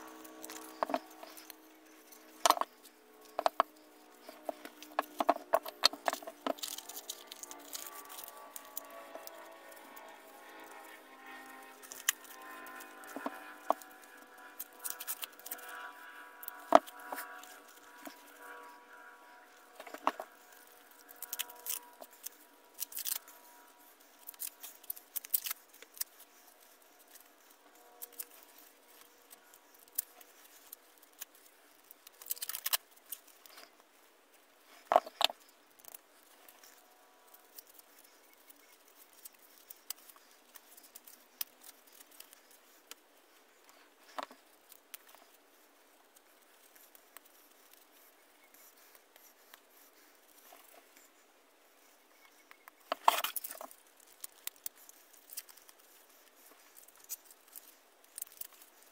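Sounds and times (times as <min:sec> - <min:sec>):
small metal parts clicking: 0:00.0 - 0:18.8, 0:19.7 - 0:33.7, 0:52.9 - 0:58.9.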